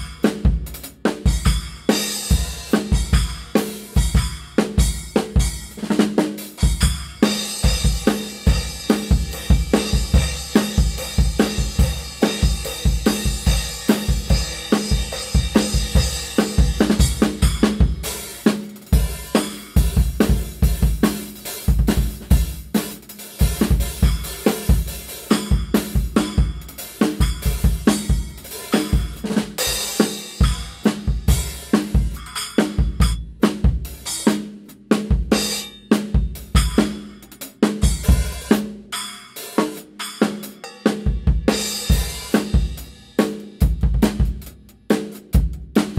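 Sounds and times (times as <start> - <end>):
drum kit groove: 0.0 - 45.9.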